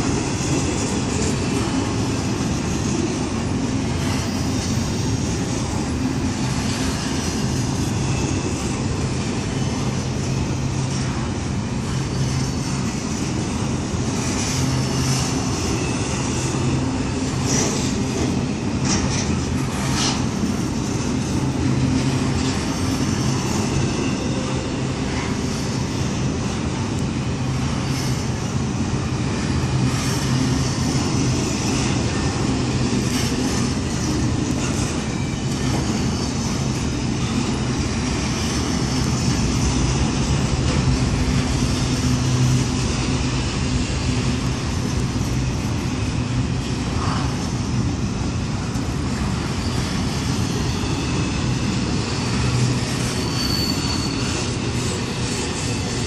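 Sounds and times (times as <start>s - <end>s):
freight train wheels clattering on rail: 0.0s - 56.0s
high-pitched wheel squeals: 49.3s - 56.0s.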